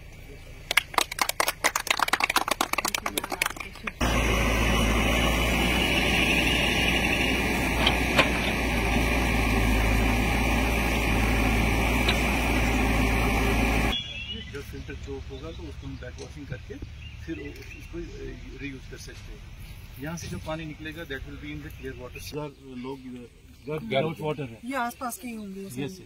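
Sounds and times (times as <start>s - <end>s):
people clapping: 0.6s - 4.1s
diesel engine under load: 2.5s - 16.4s.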